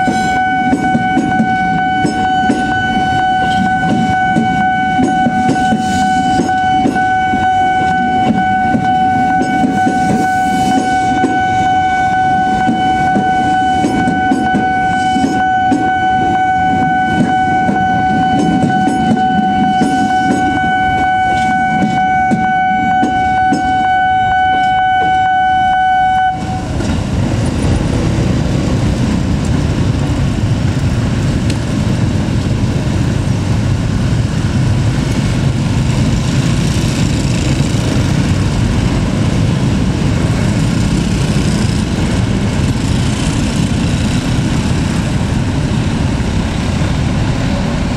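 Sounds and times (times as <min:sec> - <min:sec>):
level crossing warning alarm: 0:00.0 - 0:26.9
electric train rumbling past: 0:00.0 - 0:47.9
motorbike and vehicle engines idling: 0:26.5 - 0:47.9.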